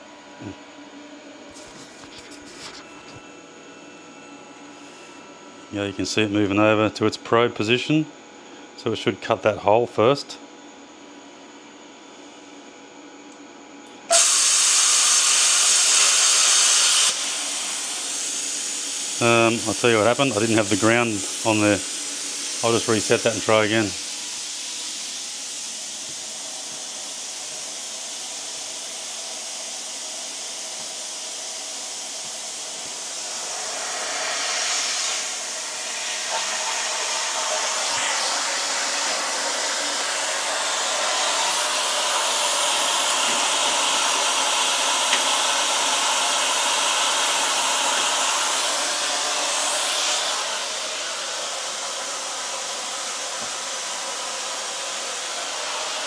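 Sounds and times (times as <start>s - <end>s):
air hissing through plasma cutter: 14.1s - 56.0s.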